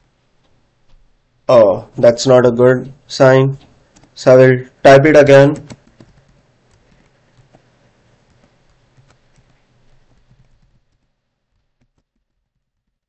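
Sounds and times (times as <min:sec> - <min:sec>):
faint keyboard typing: 0:02.8 - 0:04.2, 0:05.4 - 0:13.0.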